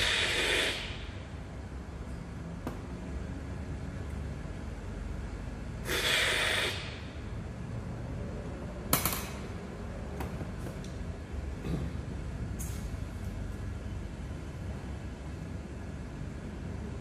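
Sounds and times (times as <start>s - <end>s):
person sniffing: 0.0s - 1.0s, 5.8s - 7.0s
low room rumble: 0.0s - 17.0s.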